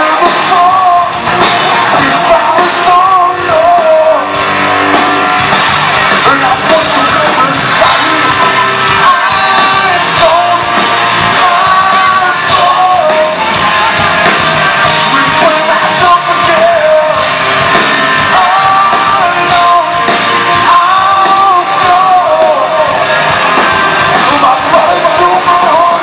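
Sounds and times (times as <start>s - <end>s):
electric guitars and bass: 0.0s - 26.0s
person singing and yelling: 0.0s - 26.0s.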